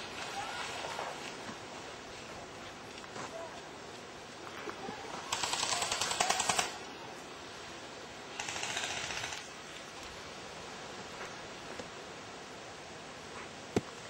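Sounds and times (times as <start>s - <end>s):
airsoft gun full-auto bursts: 5.3s - 6.8s, 8.3s - 9.5s.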